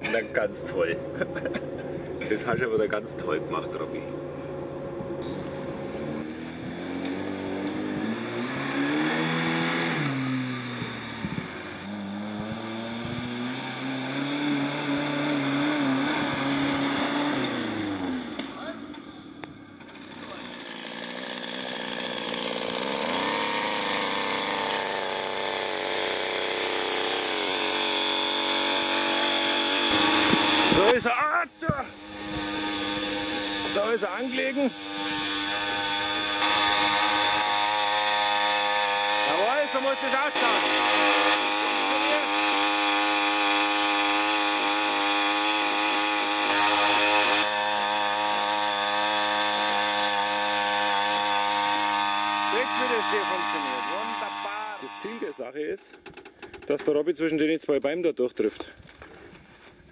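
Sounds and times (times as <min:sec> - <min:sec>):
small petrol engine revving: 0:04.6 - 0:55.4.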